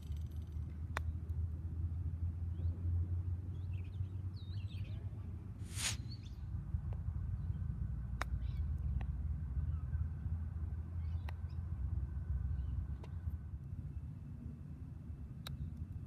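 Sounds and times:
burst of hiss: 5.6s - 6.2s.

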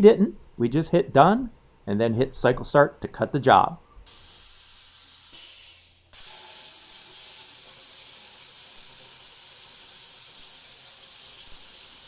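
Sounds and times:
plasma cutter torch hissing: 4.1s - 12.0s.

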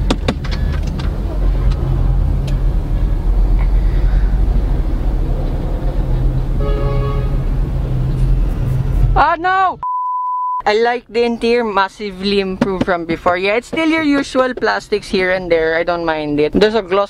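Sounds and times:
car engine idling: 0.0s - 9.6s.

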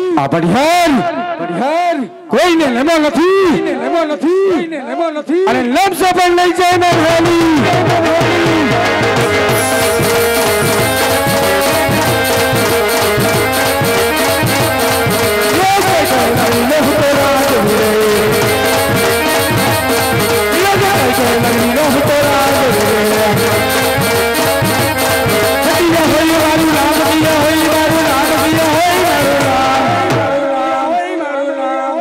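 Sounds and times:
quick steady drum beat: 6.9s - 30.3s
wavering folk melody: 8.0s - 30.2s.

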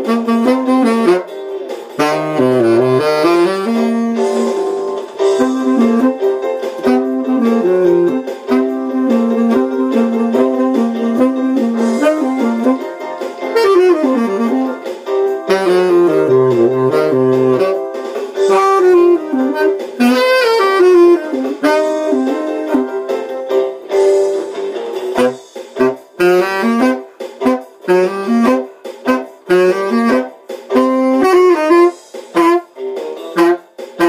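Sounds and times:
tenor saxophone jazz melody: 0.0s - 34.0s.

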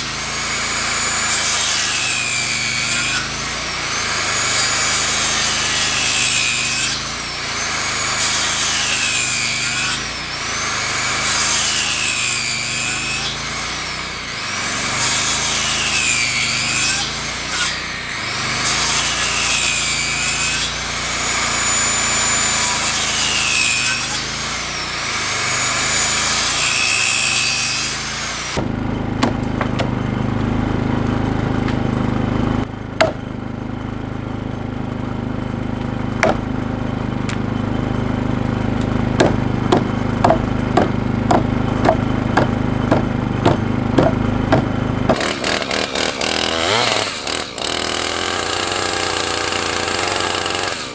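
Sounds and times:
hand saw cutting wood: 0.0s - 33.5s, 34.6s - 50.9s
sharp knocks: 29.2s - 30.0s, 33.0s - 33.3s, 36.2s - 36.5s, 39.2s - 45.6s.

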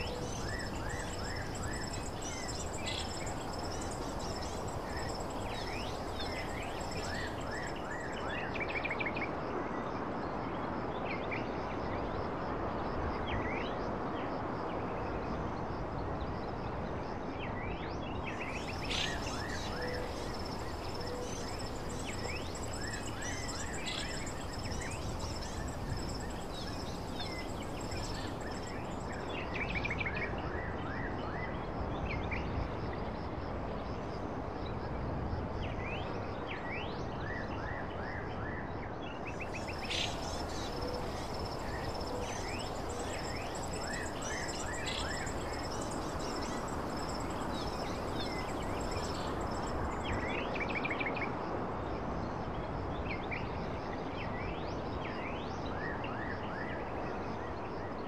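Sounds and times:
birds chirping: 0.0s - 8.2s, 18.5s - 29.2s, 39.5s - 50.0s
steady background noise: 0.0s - 56.0s.

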